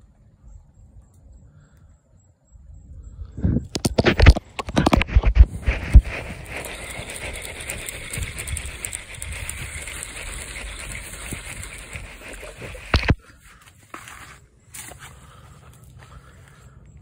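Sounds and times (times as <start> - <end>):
hand rubbing over microphone: 3.8 - 13.2.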